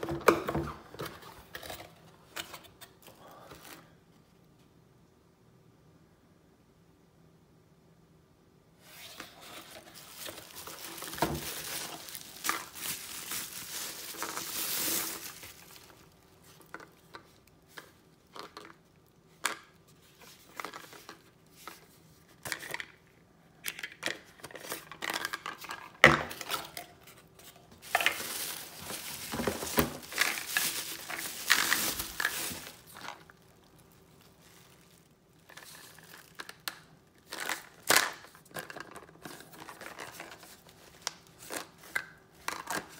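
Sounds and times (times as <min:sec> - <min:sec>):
bubble wrap crinkling: 0:08.8 - 0:19.2, 0:24.4 - 0:42.9.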